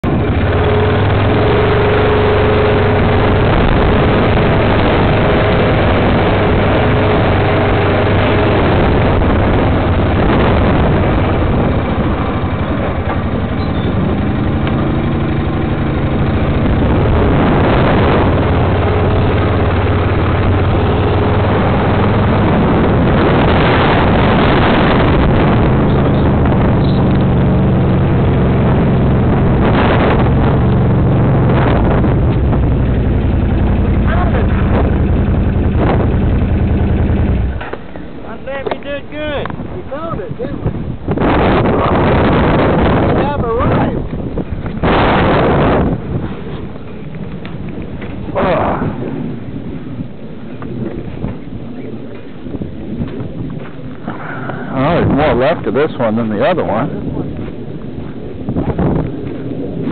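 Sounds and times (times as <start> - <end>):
atv engine running: 0.0 - 38.6, 39.2 - 59.9.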